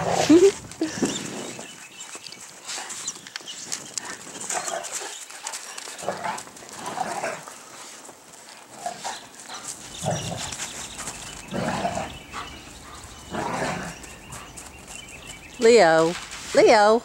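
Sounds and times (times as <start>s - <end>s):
paws crunching in snow: 0.0s - 17.0s
dogs vocalizing: 8.9s - 15.5s.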